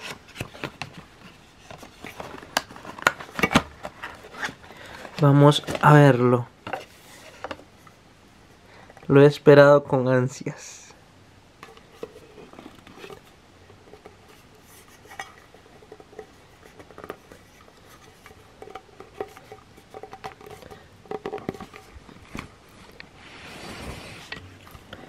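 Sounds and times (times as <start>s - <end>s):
rustle: 21.6s - 25.0s.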